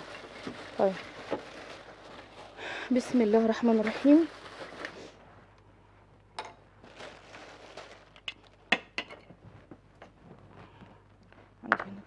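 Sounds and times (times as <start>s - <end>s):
soft rustle: 0.0s - 5.6s.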